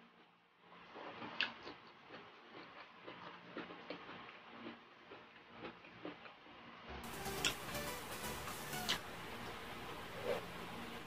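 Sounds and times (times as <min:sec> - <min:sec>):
chewing and lip smacking: 0:00.9 - 0:06.7.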